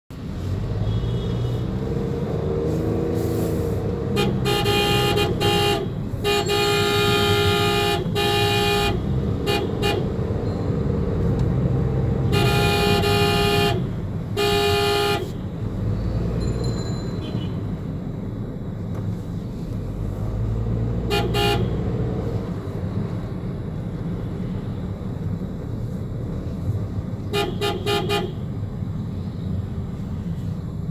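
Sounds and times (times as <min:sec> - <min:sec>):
low rumble of engines: 0:00.1 - 0:30.9
vehicle horns honking: 0:00.8 - 0:01.8, 0:04.1 - 0:10.3, 0:12.1 - 0:15.5, 0:16.9 - 0:17.7, 0:21.0 - 0:21.9, 0:27.3 - 0:28.5.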